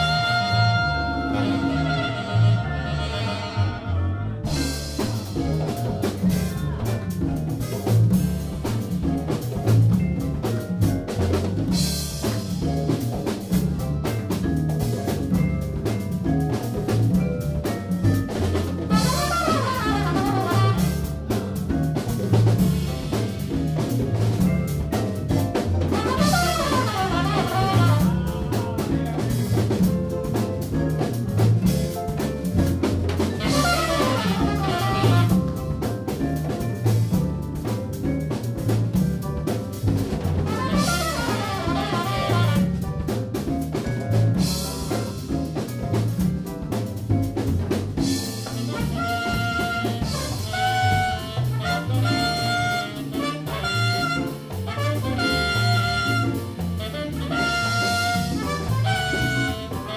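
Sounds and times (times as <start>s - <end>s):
drum kit with cymbals: 0.0s - 3.5s, 4.4s - 59.9s
tenor saxophone: 0.0s - 4.7s, 18.9s - 21.3s, 25.9s - 28.9s, 33.4s - 35.7s, 40.4s - 42.8s, 48.4s - 59.9s
trumpet: 0.0s - 5.3s, 18.9s - 21.5s, 25.8s - 29.3s, 33.4s - 35.8s, 40.4s - 43.0s, 48.4s - 59.9s
upright bass line: 0.0s - 59.9s
vibraphone: 4.4s - 59.9s.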